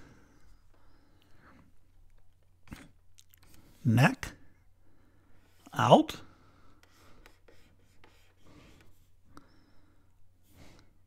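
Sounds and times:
stylus scratching on tablet: 6.8 - 9.1.

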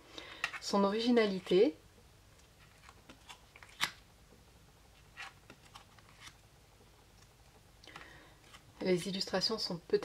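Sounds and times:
cards clicking and sliding: 2.7 - 4.0, 5.1 - 6.4.

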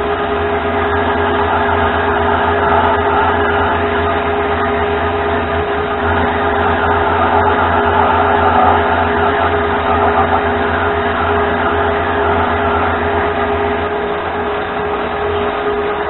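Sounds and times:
lathe cutting metal: 0.0 - 16.0
lathe motor hum and whine: 0.0 - 16.0.

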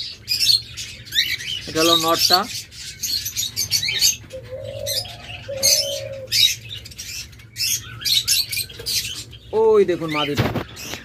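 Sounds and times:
cage birds chirping: 0.0 - 11.0
dove cooing: 3.6 - 6.8.

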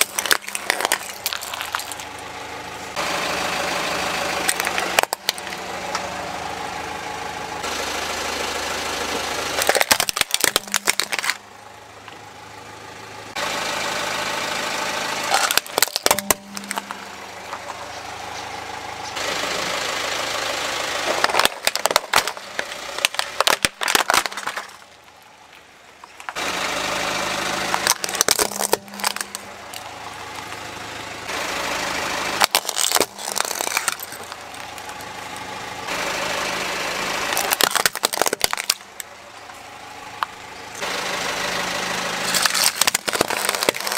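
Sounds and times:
plastic toys cracking under tyre: 0.0 - 2.3, 4.4 - 6.0, 9.5 - 11.4, 15.3 - 17.8, 21.0 - 26.4, 27.6 - 30.5, 32.4 - 35.5, 37.2 - 39.1, 42.2 - 43.9
car engine running slowly: 0.0 - 43.9.

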